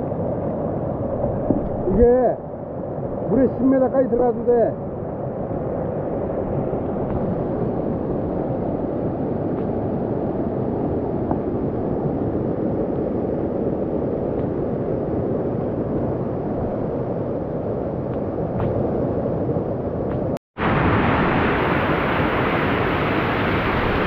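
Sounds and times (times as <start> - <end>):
stream rushing over rocks: 20.6 - 24.0.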